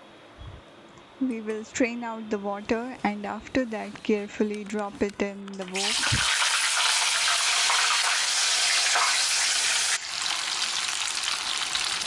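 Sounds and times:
banana slices sizzling in oil: 5.7 - 12.0.

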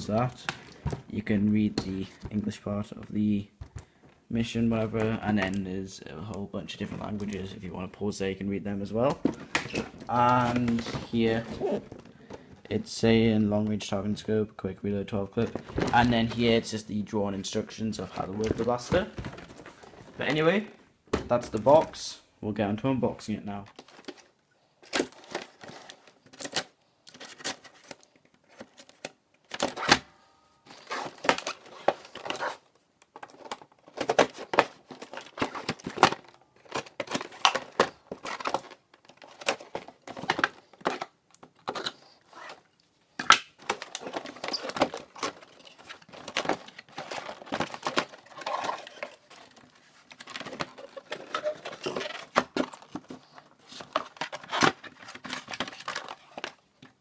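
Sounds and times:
cardboard rustling and clicking: 9.1 - 12.7, 30.7 - 42.6, 43.6 - 57.0.

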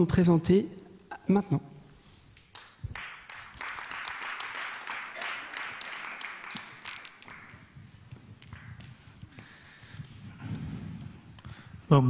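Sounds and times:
audience applauding: 2.6 - 7.8.

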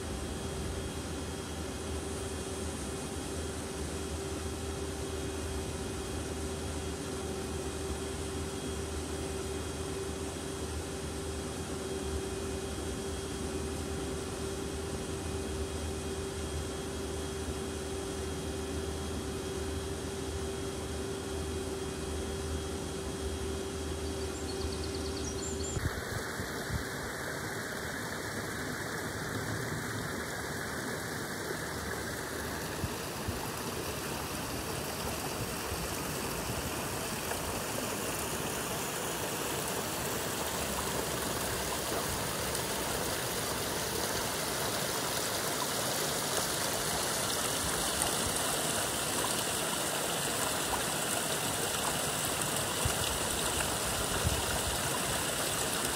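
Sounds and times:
machine hum with pitched tone: 0.0 - 55.9
stream running over stones: 25.9 - 55.9.

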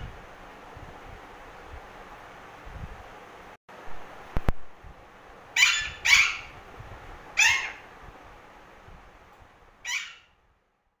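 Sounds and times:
parakeet squawking: 5.6 - 6.6, 7.4 - 7.9, 9.8 - 10.3.

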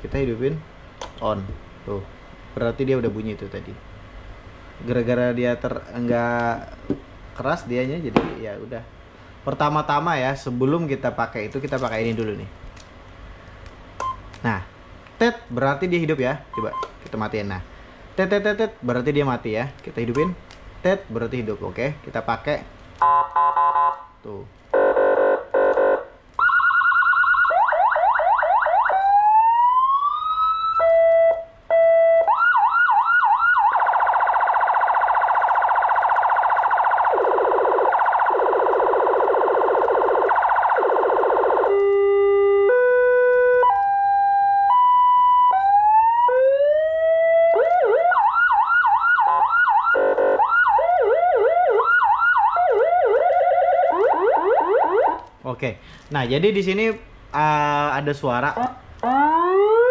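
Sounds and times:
electronic siren: 23.0 - 24.1, 24.8 - 55.3, 58.6 - 59.9.

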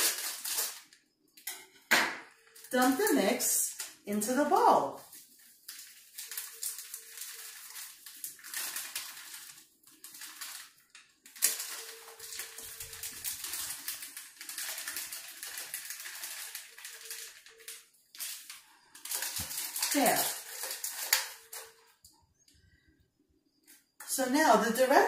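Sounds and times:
dry mix pouring into bowl: 5.0 - 21.7.

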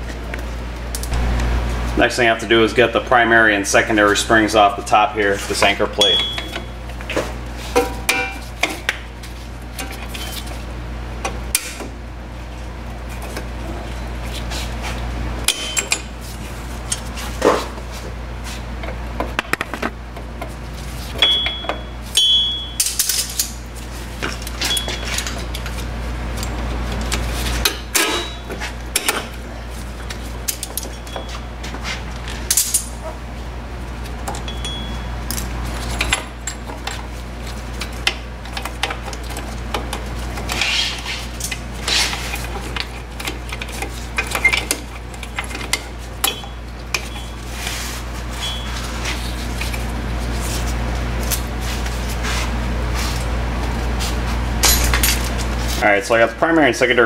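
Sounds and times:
steady low hum: 0.0 - 57.0
metal tools and springs clinking: 6.0 - 6.7, 15.5 - 16.2, 21.2 - 23.6, 24.3 - 25.7, 27.6 - 29.3, 30.5 - 31.5, 32.5 - 33.1, 34.3 - 37.0, 43.3 - 47.4, 48.4 - 48.8, 54.6 - 55.4.

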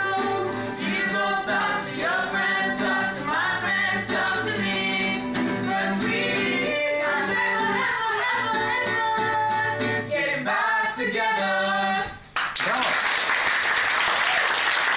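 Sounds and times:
people singing together: 0.0 - 12.3
acoustic guitar: 0.0 - 12.4
applause: 12.3 - 14.9.

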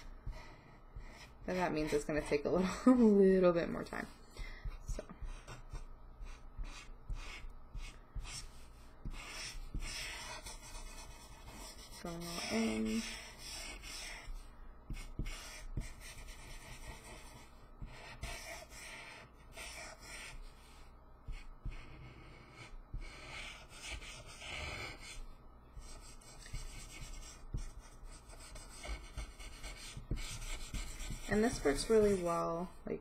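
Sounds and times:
marker rubbing over paper: 0.0 - 2.7, 3.6 - 32.8.

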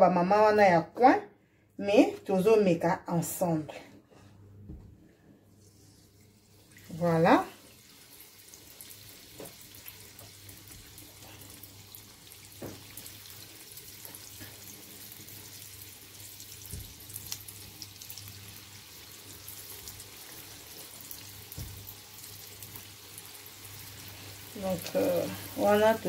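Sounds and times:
batter deep-frying in oil: 5.6 - 26.0.

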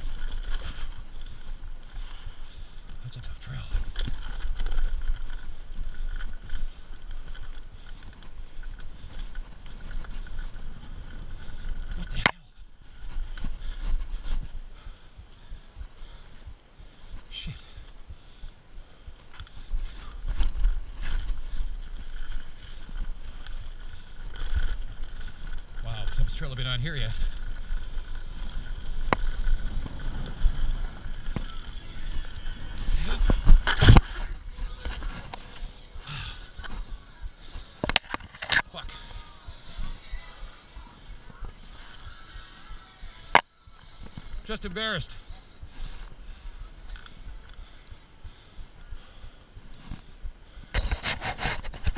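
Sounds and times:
wind buffeting microphone: 0.0 - 38.0
bike rattling: 0.0 - 51.9
bike tyres on dirt: 0.0 - 51.9.

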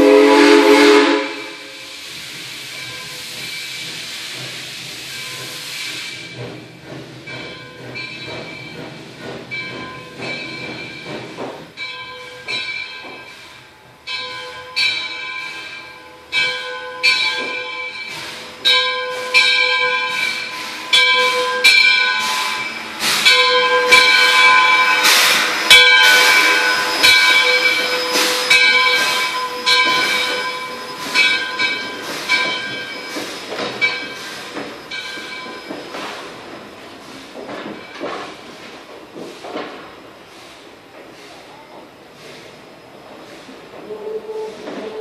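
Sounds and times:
loud hiss of steam: 0.0 - 12.5, 15.4 - 16.3, 17.3 - 45.0
locomotive bell ringing: 2.7 - 3.9, 7.2 - 36.0.

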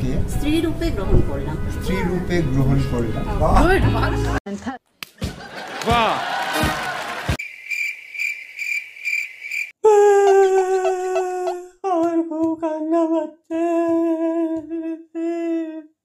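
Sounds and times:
man fake crying wail: 9.8 - 16.0.

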